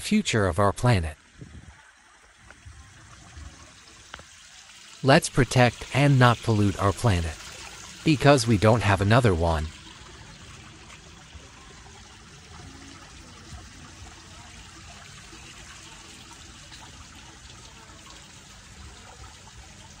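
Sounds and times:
fountain water trickling over rocks: 0:00.0 - 0:20.0.

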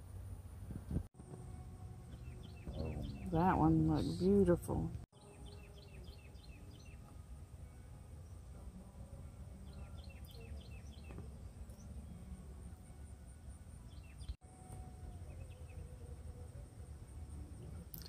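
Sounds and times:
low outdoor rumble: 0:00.0 - 0:05.1
bird chirping: 0:02.1 - 0:07.2, 0:09.6 - 0:13.0, 0:13.7 - 0:14.4, 0:15.1 - 0:16.1.

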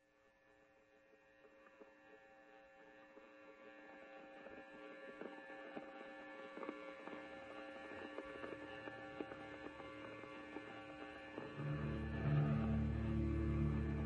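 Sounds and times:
held chord of steady tones: 0:11.6 - 0:14.0.

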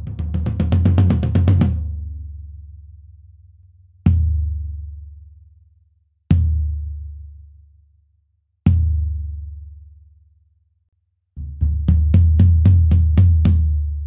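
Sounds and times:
floor tom drum roll and hits: 0:00.0 - 0:01.9, 0:11.4 - 0:13.8.

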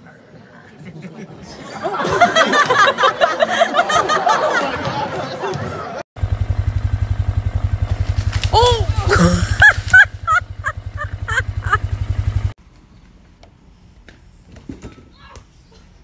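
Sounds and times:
low throbbing hum: 0:06.2 - 0:12.6
person crying out: 0:08.5 - 0:11.8
person laughing: 0:08.5 - 0:12.0.

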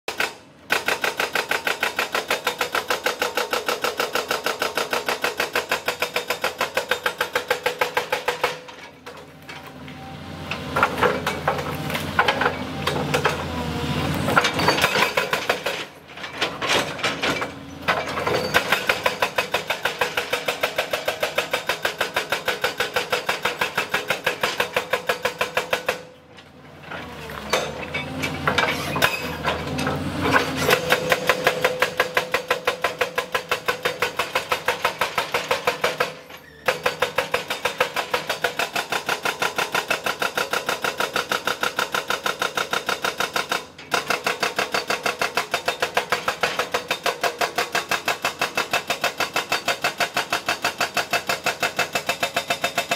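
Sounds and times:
hydraulic breaker hammering rock: 0:16.7 - 0:26.1, 0:27.5 - 0:52.9.

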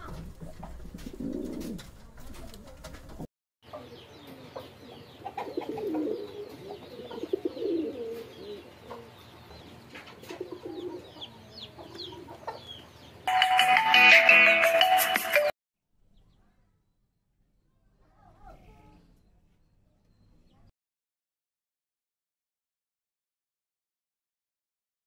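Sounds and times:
pigeons cooing: 0:00.0 - 0:02.0, 0:04.6 - 0:09.2, 0:09.8 - 0:12.7
small birds chirping: 0:03.6 - 0:13.3, 0:16.1 - 0:16.9, 0:17.7 - 0:20.7.

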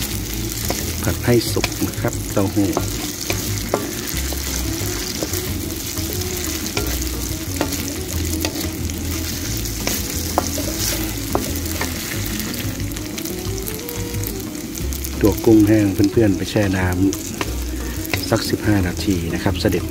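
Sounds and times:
spatula knocking on pan: 0:00.0 - 0:15.7, 0:17.1 - 0:19.1
food sizzling in a wok: 0:00.0 - 0:19.9
wooden spatula scraping a wok: 0:00.0 - 0:19.9.

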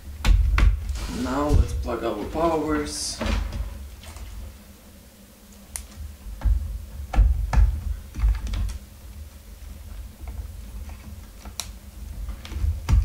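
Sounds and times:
dull thuds: 0:00.2 - 0:02.4, 0:06.4 - 0:08.6.

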